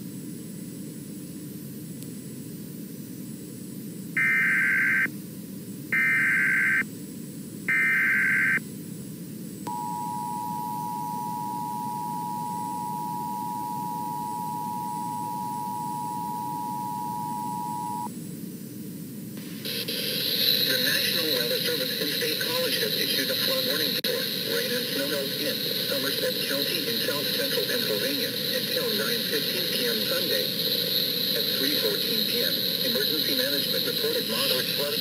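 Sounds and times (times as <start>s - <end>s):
low hiss: 0.0s - 35.0s
digital data tone bursts: 4.2s - 5.1s, 6.0s - 6.8s, 7.7s - 8.6s, 9.7s - 18.1s, 19.4s - 35.0s
two-tone alert signal: 4.2s - 5.1s, 6.0s - 6.8s, 7.7s - 8.6s, 9.7s - 18.1s.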